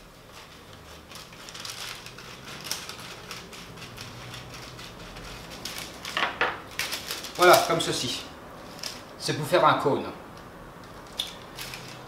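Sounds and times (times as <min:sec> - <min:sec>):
stiff paper crackling: 0:00.2 - 0:09.2, 0:10.8 - 0:12.0
scissors cutting paper: 0:00.3 - 0:06.2, 0:11.0 - 0:12.0.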